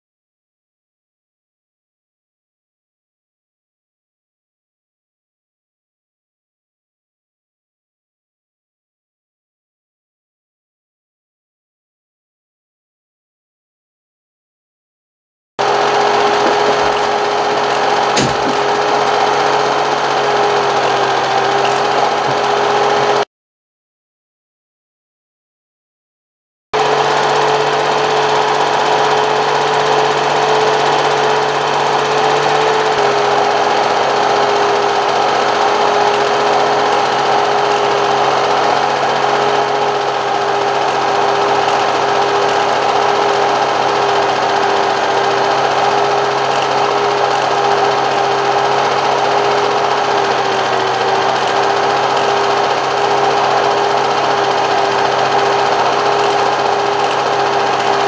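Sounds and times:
machine humming and whining: 0:15.6 - 0:23.2, 0:26.8 - 0:58.0.

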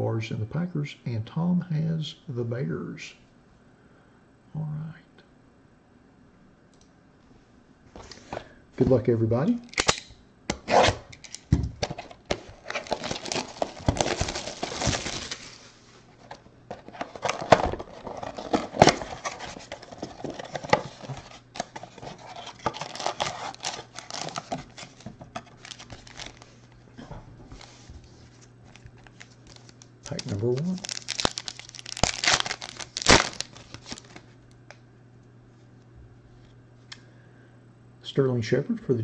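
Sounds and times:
plastic shrink wrap crinkling: 0:11.8 - 0:15.8, 0:16.7 - 0:26.8, 0:27.6 - 0:34.4
clicks and rustles of box opening: 0:16.3 - 0:26.3.

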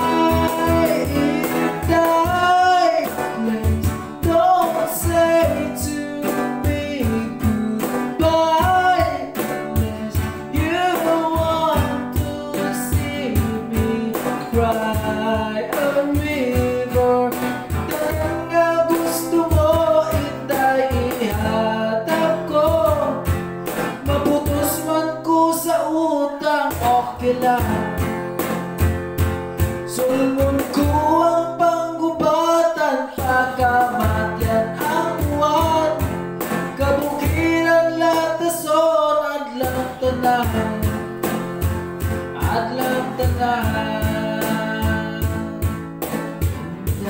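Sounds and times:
cajon beat: 0:00.0 - 0:47.0
man singing: 0:00.0 - 0:47.0
strummed acoustic guitar: 0:00.0 - 0:47.0.

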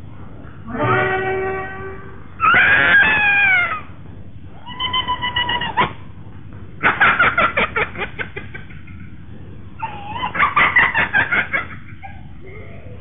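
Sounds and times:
dog-like yapping: 0:02.4 - 0:03.8, 0:04.6 - 0:06.0, 0:09.8 - 0:10.6
cat-like wail: 0:02.4 - 0:03.9, 0:04.5 - 0:06.0, 0:09.8 - 0:10.5.

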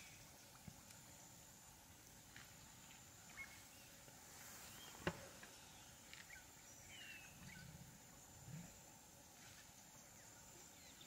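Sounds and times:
rustle of vegetation: 0:00.0 - 0:11.0
bird chirps: 0:04.7 - 0:07.8.

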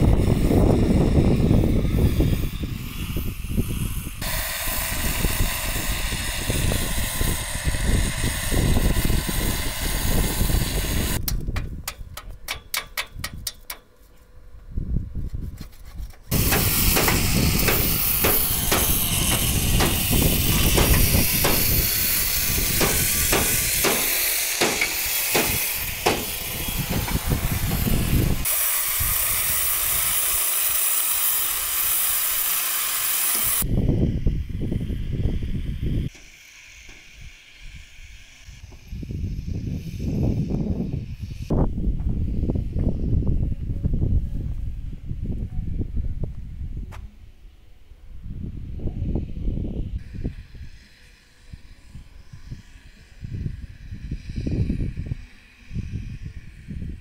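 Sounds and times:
wind on microphone: 0:00.0 - 0:12.4, 0:14.5 - 0:30.2, 0:33.4 - 0:36.2, 0:37.2 - 0:57.0
sharp knocks on metal: 0:11.3 - 0:13.8, 0:16.5 - 0:20.0, 0:20.7 - 0:21.7, 0:22.8 - 0:27.2.

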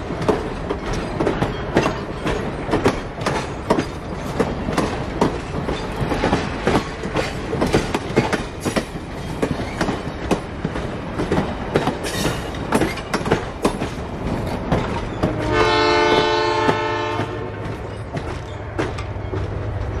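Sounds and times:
train wheels clicking over rail joints: 0:00.0 - 0:20.0
locomotive horn blast: 0:15.2 - 0:17.8.

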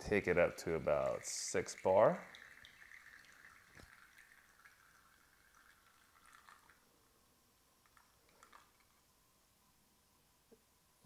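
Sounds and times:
espresso trickling into cup: 0:00.6 - 0:06.8.

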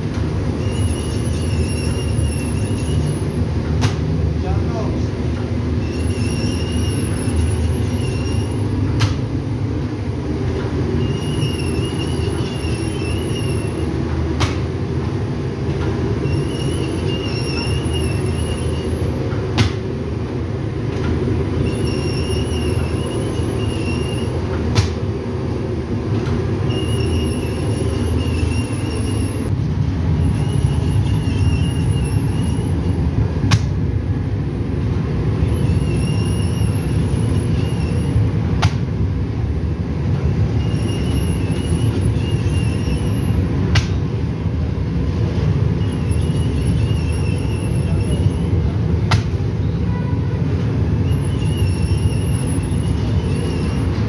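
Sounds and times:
wavering high machine squeal: 0:00.4 - 0:03.7, 0:05.7 - 0:09.1, 0:10.8 - 0:14.2, 0:16.1 - 0:19.4, 0:21.4 - 0:24.6, 0:26.5 - 0:29.6, 0:30.2 - 0:33.3, 0:35.3 - 0:38.5, 0:40.2 - 0:43.6, 0:45.0 - 0:49.0, 0:50.8 - 0:54.0.

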